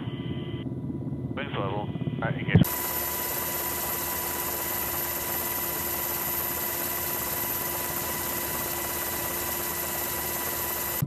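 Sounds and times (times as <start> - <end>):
helicopter turbine and rotor noise: 0.0 - 11.0
whining tones: 2.6 - 11.0.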